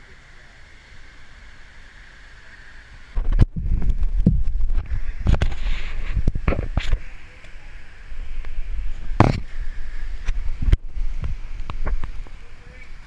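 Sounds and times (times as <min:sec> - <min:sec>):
waterfall rushing: 0:00.0 - 0:03.3, 0:04.0 - 0:13.0
camera handling rumble and knocks: 0:09.2 - 0:09.5.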